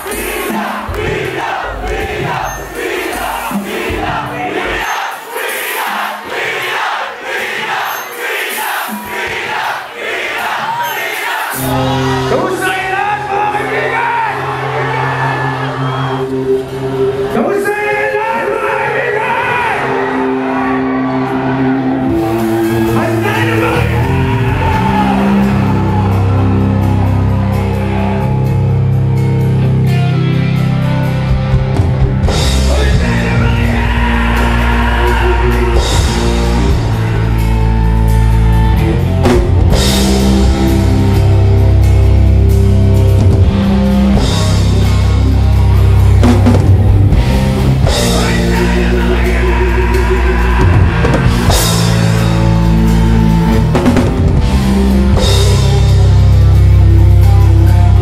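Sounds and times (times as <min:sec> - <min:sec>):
drum kit: 0:00.0 - 0:13.0, 0:22.0 - 0:58.0
electric guitars: 0:11.5 - 0:17.7, 0:19.3 - 0:58.0
sustained bass line: 0:11.6 - 0:17.4, 0:20.1 - 0:58.0.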